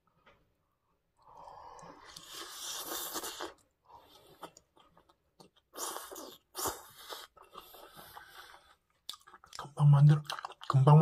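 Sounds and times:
slurping food: 0:01.9 - 0:04.6, 0:05.7 - 0:08.8
chewing noises: 0:02.1 - 0:11.0.

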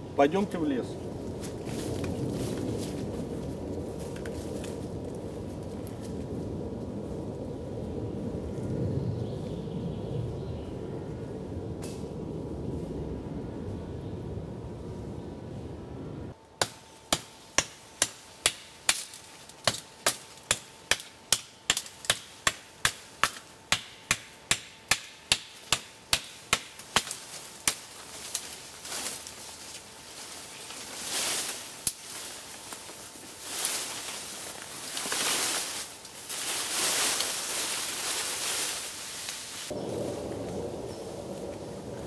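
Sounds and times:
leafy sapling rustling and swishing: 0:00.0 - 0:08.8, 0:25.6 - 0:42.0
blade chopping sapling: 0:16.6 - 0:27.9.

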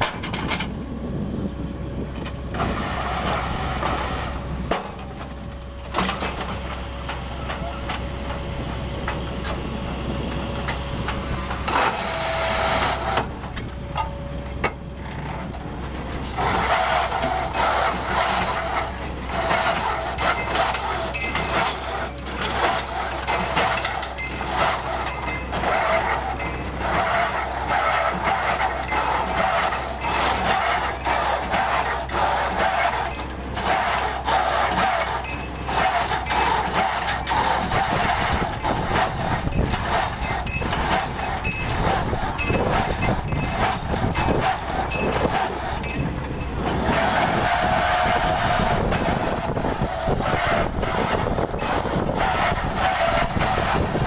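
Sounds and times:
drilling rig engine humming: 0:00.0 - 0:54.0
loud rushing hiss of drilling: 0:02.5 - 0:04.5, 0:11.7 - 0:13.4, 0:16.2 - 0:40.5.

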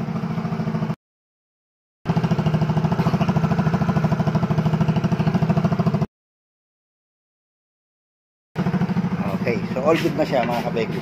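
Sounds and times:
scooter engine idling: 0:00.0 - 0:01.0, 0:02.1 - 0:06.1, 0:08.6 - 0:11.0.

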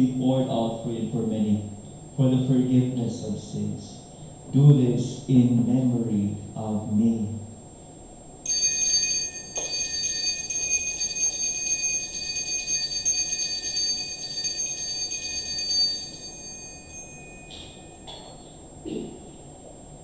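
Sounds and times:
altar bell ringing: 0:08.5 - 0:18.4.

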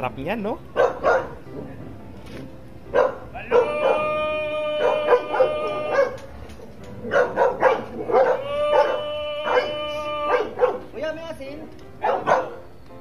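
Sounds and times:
dog barking: 0:00.8 - 0:01.4, 0:02.9 - 0:04.1, 0:04.8 - 0:06.3, 0:07.1 - 0:10.9, 0:12.0 - 0:12.6
vendor's long street cry: 0:03.2 - 0:06.6, 0:07.8 - 0:11.2.

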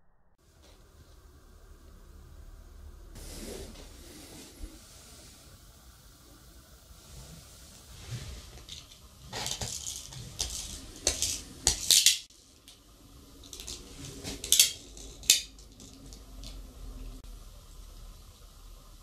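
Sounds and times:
toy car clicks on metal track: 0:09.3 - 0:12.3.

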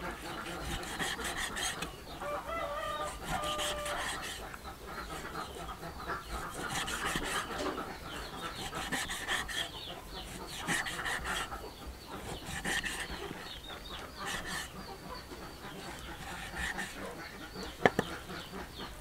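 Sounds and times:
birds calling: 0:00.0 - 0:19.0.

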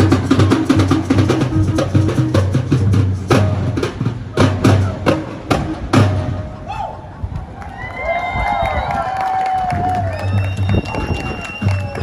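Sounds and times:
drum percussion music: 0:00.0 - 0:06.7.

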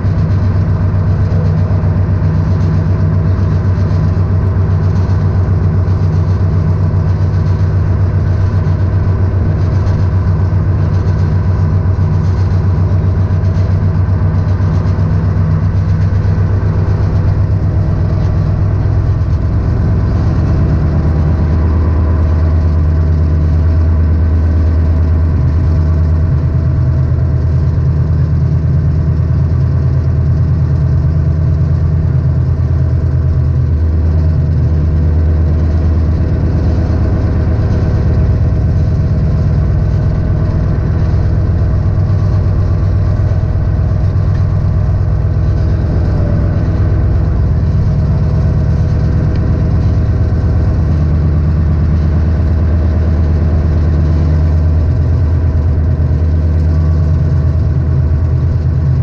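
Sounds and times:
diesel engine humming: 0:00.0 - 0:59.0.

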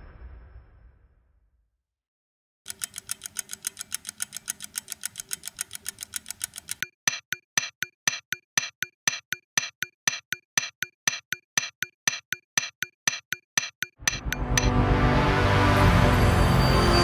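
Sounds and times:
sharp bright ticks: 0:02.7 - 0:14.8
music: 0:14.0 - 0:17.0.

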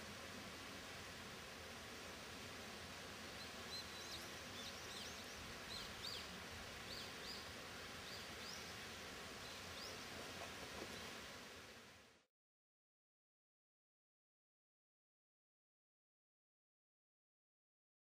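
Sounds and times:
steady background hiss: 0:00.0 - 0:12.3
small birds chirping: 0:03.4 - 0:06.3.

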